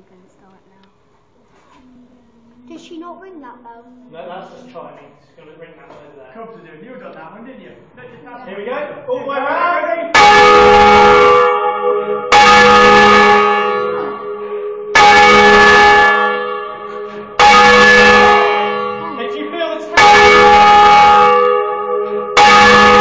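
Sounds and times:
church bell clanging: 10.1 - 23.0.

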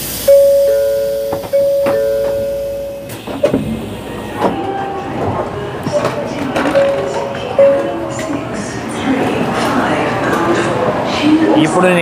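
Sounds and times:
two-note electronic chime: 0.3 - 3.2.

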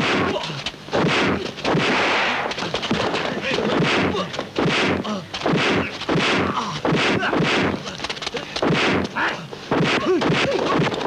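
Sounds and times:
punch and kick impacts: 0.0 - 8.0, 8.6 - 11.0
fighters shouting and grunting: 2.6 - 11.0.

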